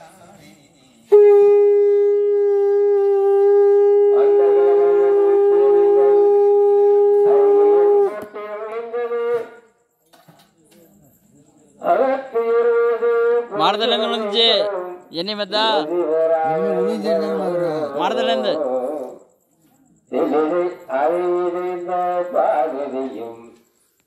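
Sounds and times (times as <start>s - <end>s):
conch shell blast: 1.1s - 9.6s.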